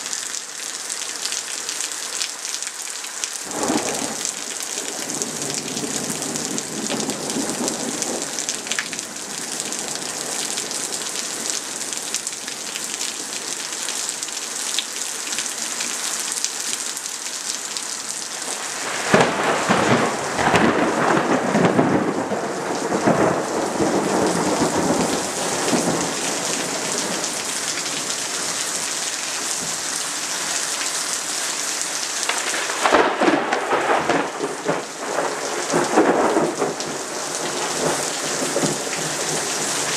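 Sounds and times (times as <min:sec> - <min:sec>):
heavy rain: 0:00.0 - 0:39.9
thunder rumbling: 0:03.5 - 0:10.4, 0:18.5 - 0:28.1, 0:32.3 - 0:39.9.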